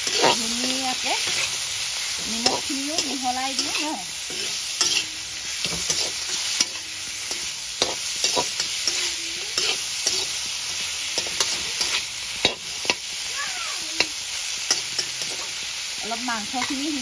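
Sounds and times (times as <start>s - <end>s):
metal spatula scraping pan: 0.0s - 1.6s, 2.2s - 10.4s
food sizzling in oil: 0.0s - 17.0s.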